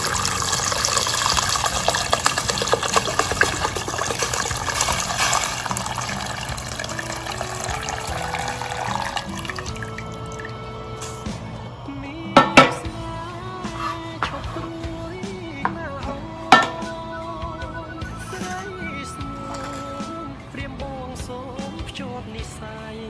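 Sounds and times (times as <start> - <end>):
broth pouring into pot: 0.0 - 10.7
soft background music: 0.0 - 23.0.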